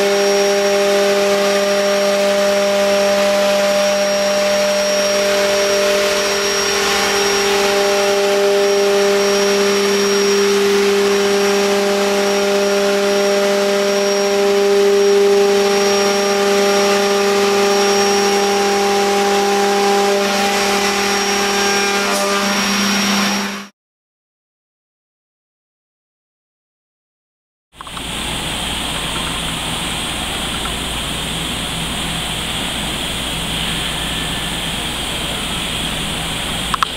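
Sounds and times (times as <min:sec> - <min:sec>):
cnc router spindle whine: 0:00.0 - 0:23.7, 0:27.8 - 0:36.9
vacuum suction hiss: 0:27.8 - 0:36.9.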